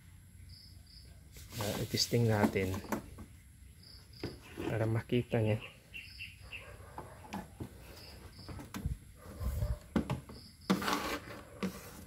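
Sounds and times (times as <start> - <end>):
scraping rustle: 1.3 - 3.1, 4.4 - 5.1, 7.1 - 12.0
bird chirping: 2.8 - 4.6, 5.2 - 8.8.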